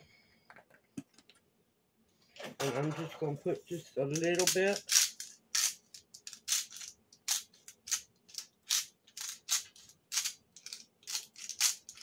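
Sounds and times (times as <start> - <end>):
spice bottle rattling: 4.2 - 12.0.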